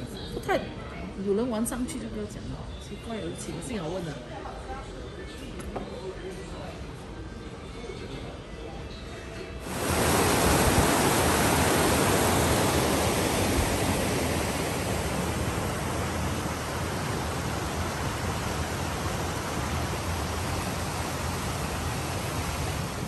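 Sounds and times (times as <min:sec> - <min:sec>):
stream rushing over rocks: 0:09.6 - 0:23.0.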